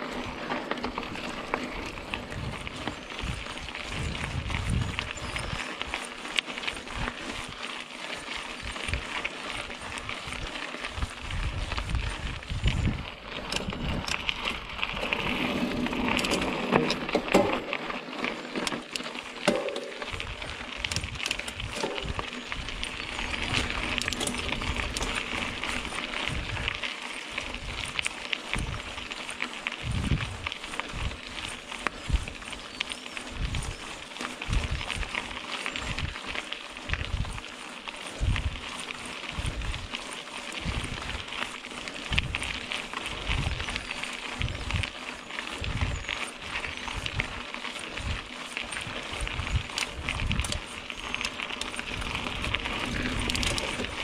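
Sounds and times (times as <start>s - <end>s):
bike clicks and rattles: 0.0s - 54.0s
bike tyre noise on dirt trail: 0.0s - 54.0s
wind buffeting microphone: 1.0s - 7.6s, 8.2s - 17.4s, 19.5s - 54.0s.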